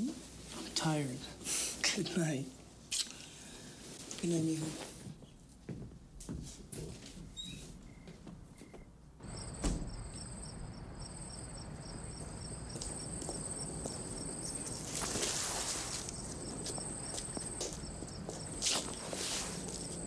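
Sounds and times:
crickets chirping: 7.4s - 20.0s
thump: 9.5s - 10.1s
footsteps on pavement: 11.2s - 20.0s.

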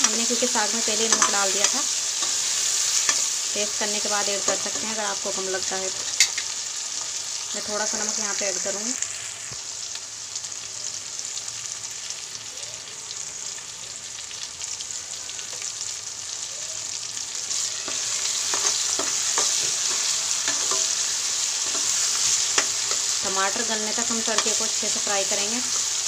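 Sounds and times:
spoon scraping metal pan: 0.0s - 3.4s, 17.8s - 23.2s
food sizzling in hot oil: 0.0s - 26.0s.

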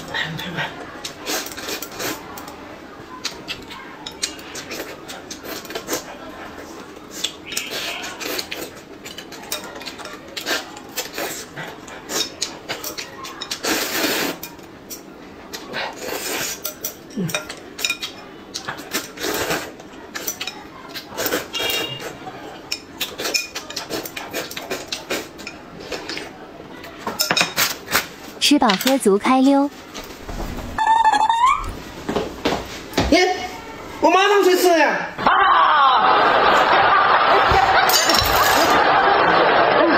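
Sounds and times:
chewing: 3.2s - 6.1s, 22.8s - 26.3s
slurping noodles: 13.6s - 14.4s, 15.9s - 16.6s, 18.9s - 19.8s.

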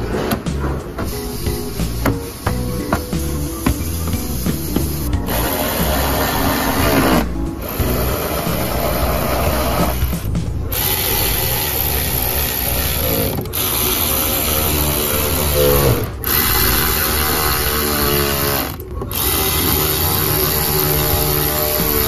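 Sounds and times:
electric ratchet motor whine: 4.7s - 22.0s.

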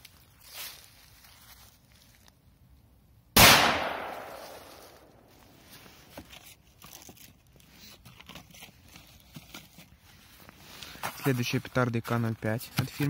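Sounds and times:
firecracker bang: 3.4s - 5.1s.

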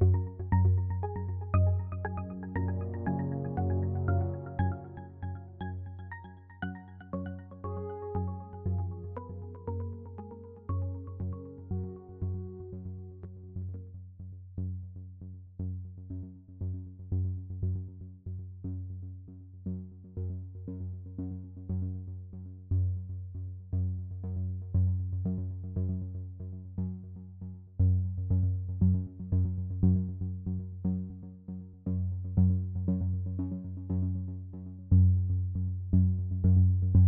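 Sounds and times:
electronic synthesizer music: 0.2s - 11.3s.

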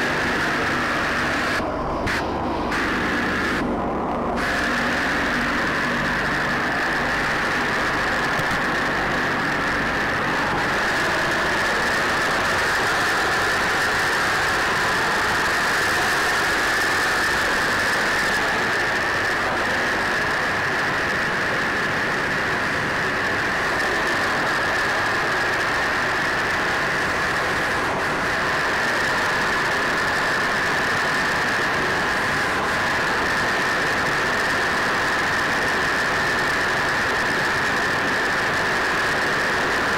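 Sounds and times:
aircraft engines running: 0.0s - 39.9s.

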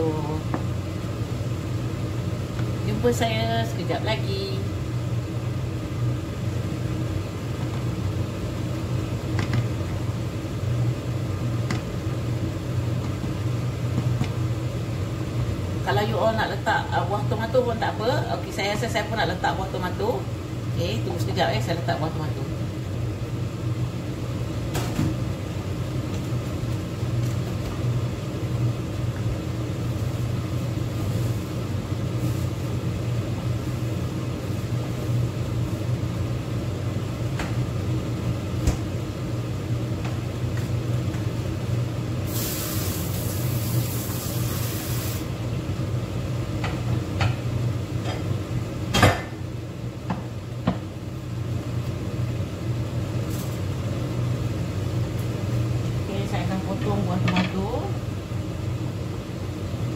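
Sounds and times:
low kitchen hum: 0.0s - 59.9s
hiss: 42.3s - 45.3s.

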